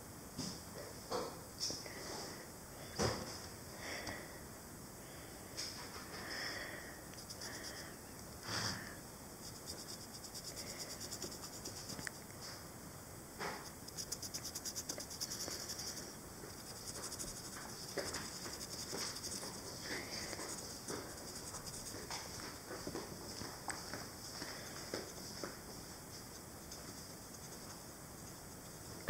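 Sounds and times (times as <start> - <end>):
marker scribbling on stone: 9.5 - 12.0, 13.6 - 22.3, 26.2 - 28.5.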